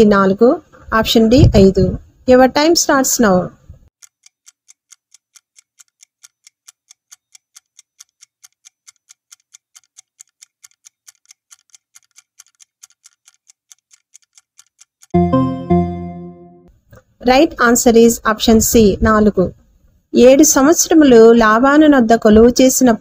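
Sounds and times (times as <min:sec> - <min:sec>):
countdown timer ticking: 0:13.2 - 0:16.7.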